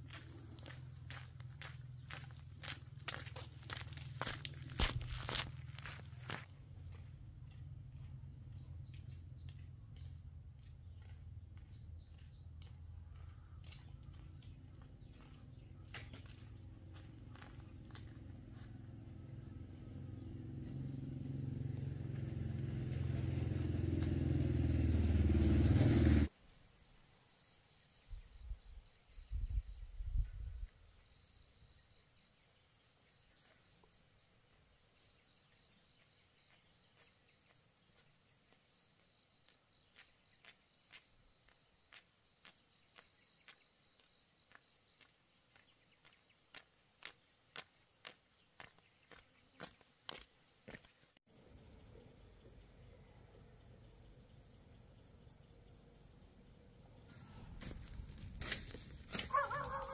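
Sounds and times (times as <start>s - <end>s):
insects chirping in trills: 0.0s - 6.4s, 26.3s - 59.9s
engine running: 16.5s - 26.3s.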